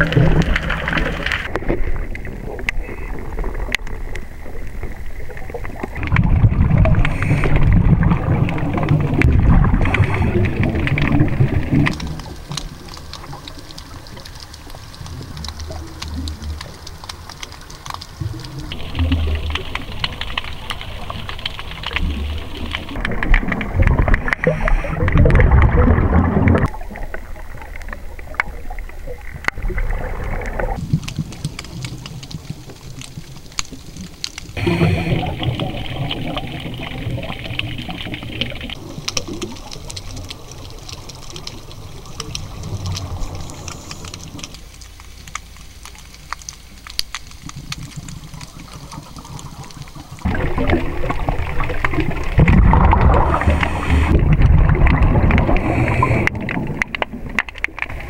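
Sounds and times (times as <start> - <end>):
bubbling underwater exhalation: 0.0 - 14.2, 18.1 - 31.5, 34.6 - 40.2, 48.1 - 58.0
faint crackle of clicks: 0.0 - 58.0
hissing regulator inhalations: 53.3 - 54.2, 55.5 - 56.3.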